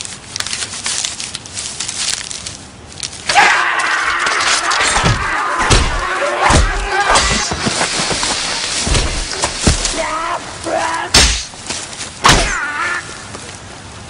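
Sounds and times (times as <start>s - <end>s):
rustling: 0.0s - 14.0s
men yelling in a brawl: 3.3s - 7.7s, 9.2s - 11.5s
footfalls: 3.3s - 12.7s
heavy thuds: 4.9s - 10.3s.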